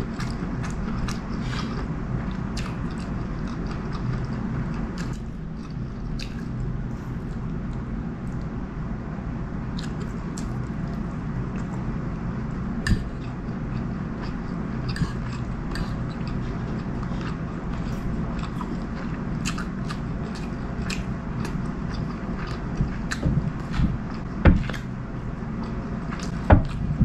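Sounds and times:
steady low hum: 0:00.0 - 0:27.0
close chewing with mouth clicks: 0:00.1 - 0:06.7, 0:12.8 - 0:24.9.

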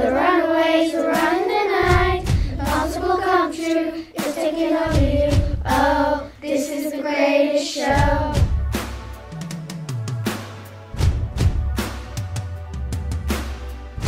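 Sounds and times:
backing track with low drum beats: 0:00.0 - 0:06.4, 0:07.8 - 0:14.0
children singing together: 0:00.0 - 0:08.5.

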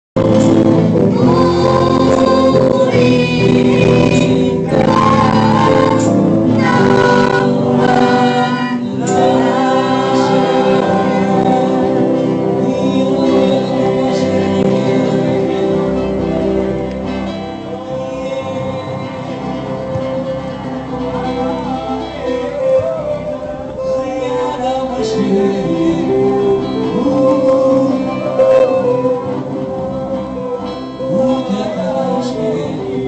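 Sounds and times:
electric guitars: 0:00.2 - 0:33.0
girl singing: 0:01.1 - 0:12.0.

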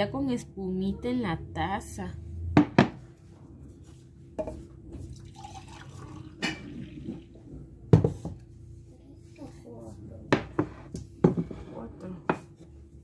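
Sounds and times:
milk pouring into a mug: 0:05.0 - 0:07.4.

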